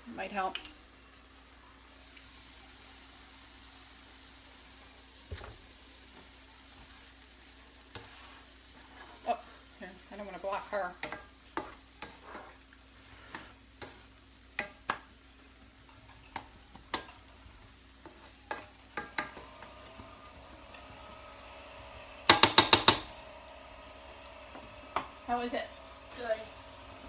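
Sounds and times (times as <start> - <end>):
spoon stirring in frying pan: 2.0 - 27.0
spoon knocking against pan: 18.5 - 19.4, 22.3 - 23.2.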